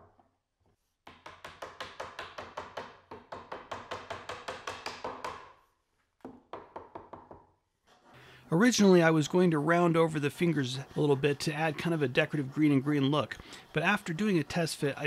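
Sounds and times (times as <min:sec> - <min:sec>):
wooden mallet tapping: 0:06.2 - 0:07.5.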